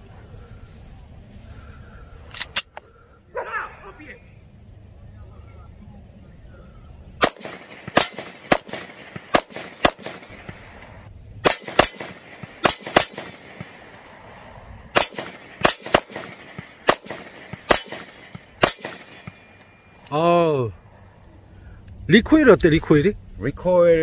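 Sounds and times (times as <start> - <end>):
pistol shots: 7.2 - 14.3, 14.9 - 19.8.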